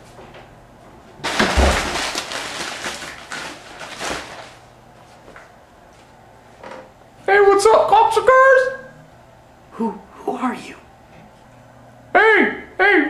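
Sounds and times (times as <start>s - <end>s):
crackling rustle: 1.2s - 6.1s
sudden thump: 1.3s - 2.2s.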